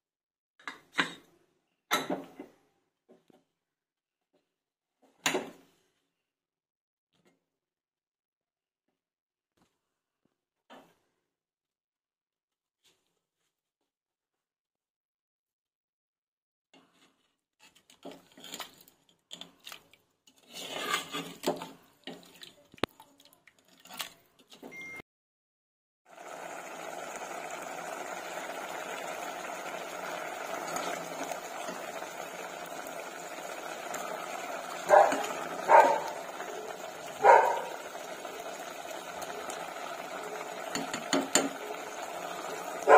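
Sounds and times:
ladle scraping and clinking pot: 17.0 - 22.5
curry bubbling in a pot: 19.7 - 24.3, 26.1 - 42.9
dog barking: 34.8 - 37.8.

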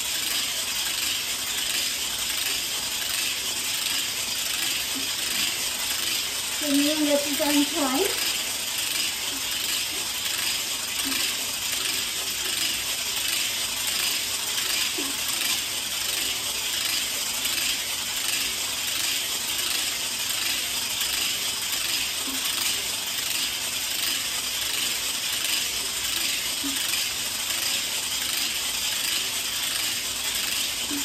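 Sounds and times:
hula hoop rattling clatter: 0.0 - 31.0.

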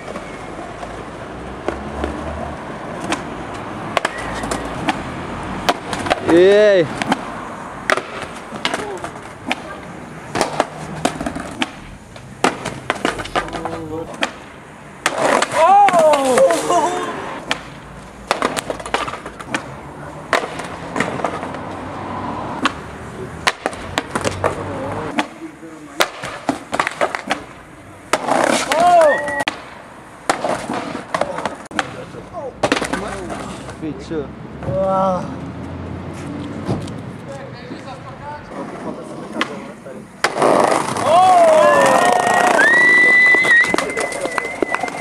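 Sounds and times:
skateboard wheels rolling on paving: 0.0 - 33.9, 35.9 - 45.0
skateboard tail snapping down: 3.9 - 6.4, 7.0 - 9.7, 10.3 - 16.7, 17.4 - 19.7, 23.4 - 25.4, 26.0 - 32.0, 38.7 - 45.0.

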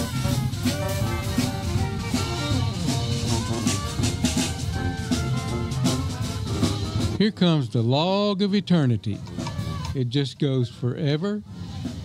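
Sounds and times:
drum kit steady beat: 0.0 - 7.5
jazz band music: 0.0 - 7.6.

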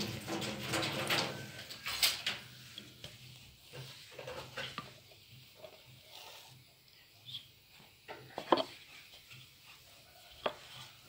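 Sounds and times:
rolling pin rolling dough: 2.5 - 11.0.

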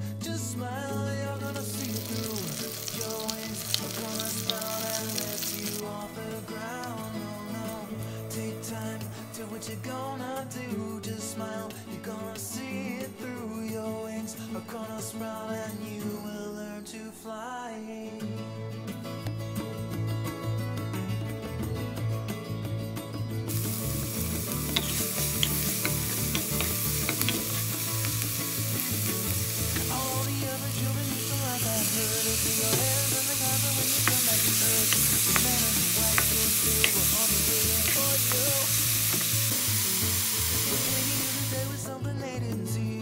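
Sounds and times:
food sizzling in a pan: 1.5 - 8.4, 23.5 - 41.8
wooden spatula scraping a pan: 24.5 - 29.9.

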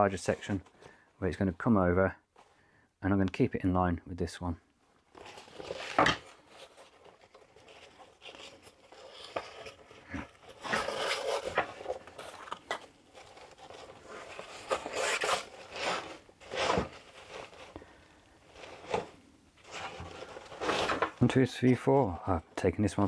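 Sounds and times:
backpack scraping on wooden table: 13.2 - 17.6, 18.6 - 21.2.

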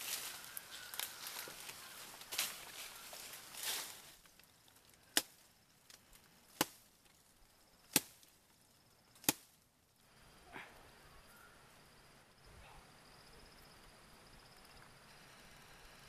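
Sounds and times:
leaves rustling: 0.0 - 8.5
blade chopping tree branch: 6.5 - 6.9, 7.9 - 8.3, 9.2 - 9.6.

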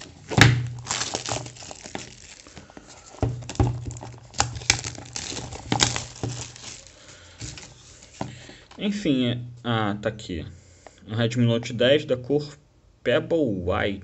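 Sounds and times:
plastic wrap crinkling: 0.0 - 8.6.

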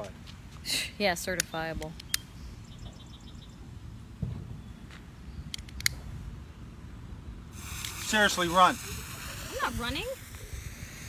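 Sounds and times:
sharp clicks: 1.4 - 2.3
wind rumbling on microphone: 1.6 - 11.0
thump: 4.2 - 4.6
firework fuse hissing: 7.5 - 11.0.

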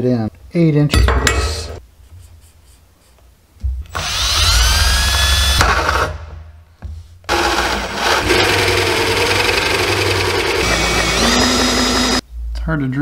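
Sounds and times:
cordless drill whining: 3.9 - 6.0, 7.3 - 12.2
hole saw cutting plastic pipe: 7.3 - 12.2.

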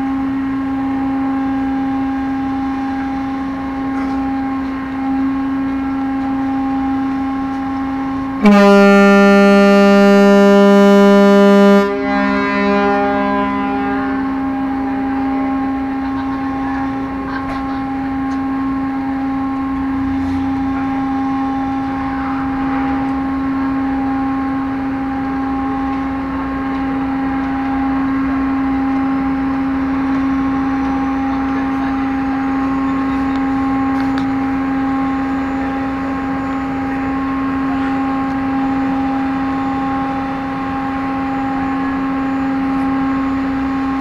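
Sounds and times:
ship engines droning: 0.0 - 44.0
ferry horn blast: 8.3 - 16.0.

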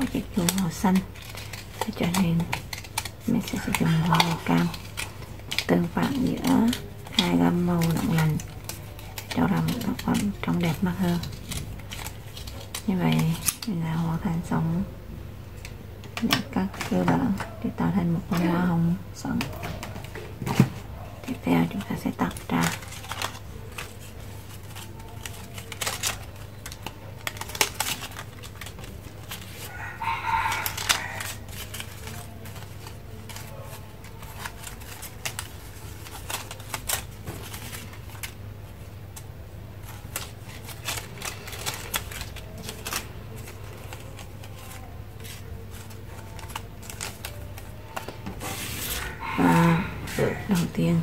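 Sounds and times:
paper and tools clicking: 0.0 - 13.8, 19.3 - 50.8
rooster crowing: 29.5 - 31.6, 48.5 - 51.0.

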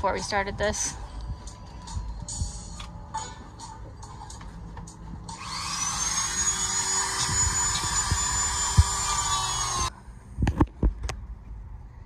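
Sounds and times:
power tool motor whining: 5.3 - 9.9.

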